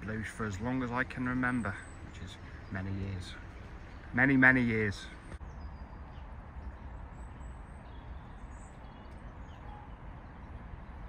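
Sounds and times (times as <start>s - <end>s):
faint bird chirps: 1.2s - 10.8s.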